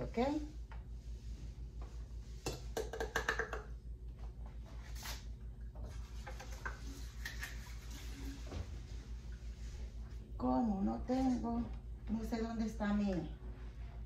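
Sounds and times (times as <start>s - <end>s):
steady low hum: 0.0s - 14.0s
items clicking and knocking on counter: 2.5s - 3.8s.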